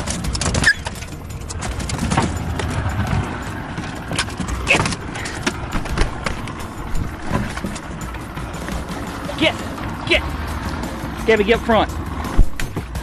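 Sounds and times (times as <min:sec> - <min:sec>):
knocking and thumping in metal boat: 0:00.0 - 0:08.9, 0:12.3 - 0:13.0.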